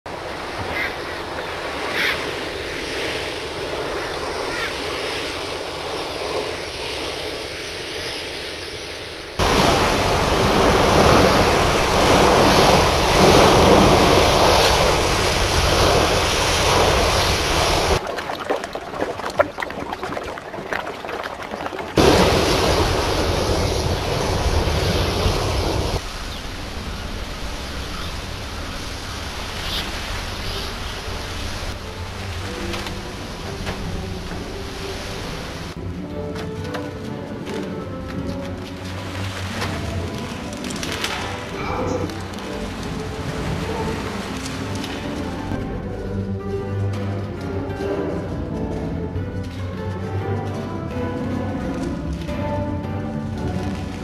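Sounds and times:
wind: 0.0 - 54.0
waves breaking: 0.1 - 54.0.

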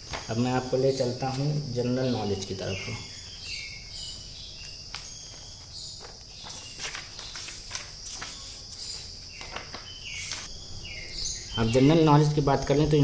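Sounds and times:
book pages flipping: 4.6 - 10.5.

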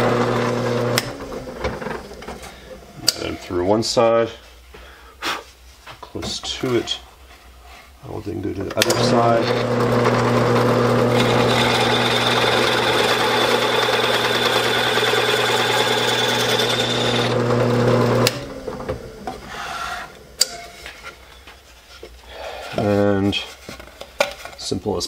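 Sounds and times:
drill press motor hum: 0.0 - 2.3, 8.8 - 20.3
hole saw rasping through wood: 11.0 - 18.3.

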